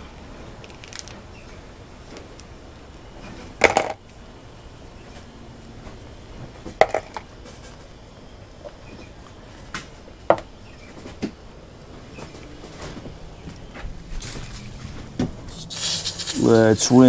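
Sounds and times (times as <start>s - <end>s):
small metal parts clicking: 0.6s - 1.2s.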